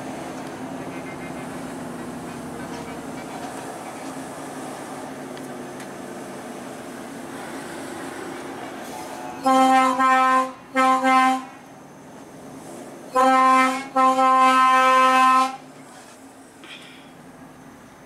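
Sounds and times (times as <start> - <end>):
truck air horn blasts: 9.4 - 11.6, 13.1 - 15.6.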